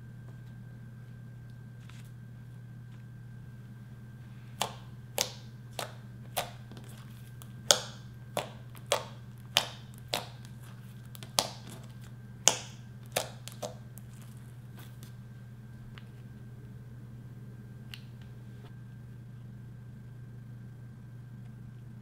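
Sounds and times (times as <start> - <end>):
sticky slime pops and clicks: 4.6 - 6.6, 7.6 - 10.5, 11.1 - 11.8, 12.4 - 13.8.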